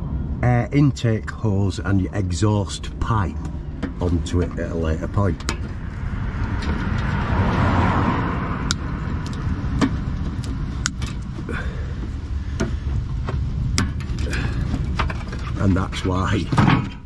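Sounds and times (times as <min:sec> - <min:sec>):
low rumble: 0:00.0 - 0:17.0
rushing noise: 0:00.0 - 0:17.0
metallic clicks and knocks: 0:03.4 - 0:07.3.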